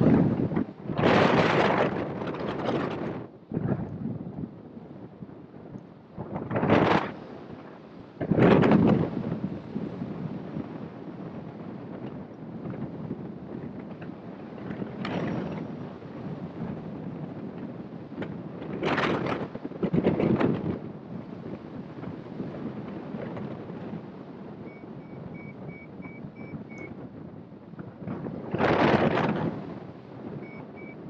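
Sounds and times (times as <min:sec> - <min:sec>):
wind rushing over microphone: 0:00.0 - 0:31.0
variometer short beeps: 0:24.7 - 0:27.0, 0:30.4 - 0:31.0.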